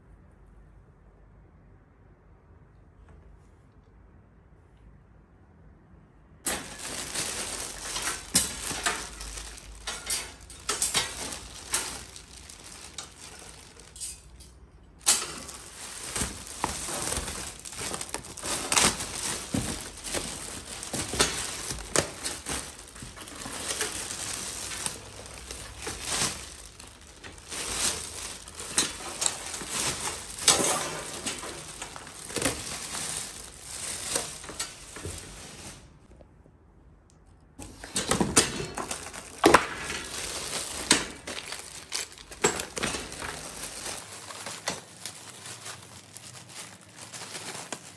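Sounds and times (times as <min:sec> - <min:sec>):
wire frames clinking: 0:06.5 - 0:33.4
plastic wrapping crinkling: 0:06.5 - 0:36.2, 0:37.6 - 0:47.9.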